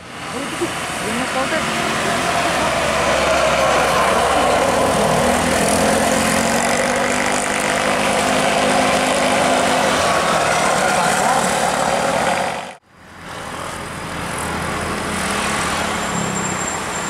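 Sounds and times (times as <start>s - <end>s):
motorcycle engines passing: 0.2s - 12.8s.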